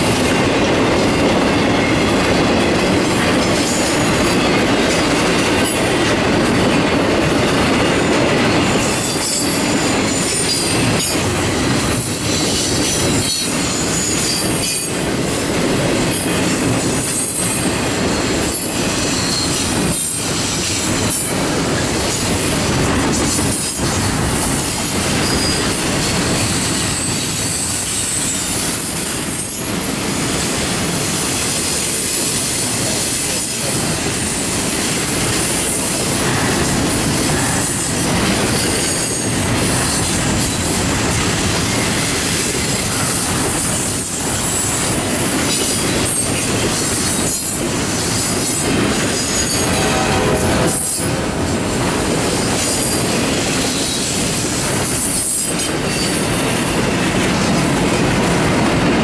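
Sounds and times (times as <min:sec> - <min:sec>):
steel wheels rumbling on rail: 0:00.0 - 0:59.0
high-pitched wheel squeal: 0:41.6 - 0:44.9.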